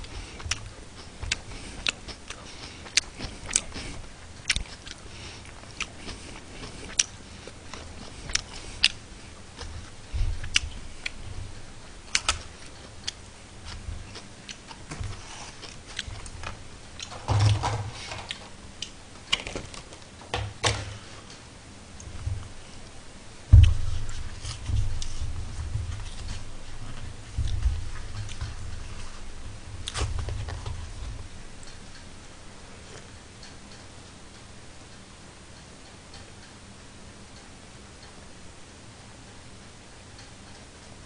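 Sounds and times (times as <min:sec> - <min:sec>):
chewing: 0:00.0 - 0:17.2.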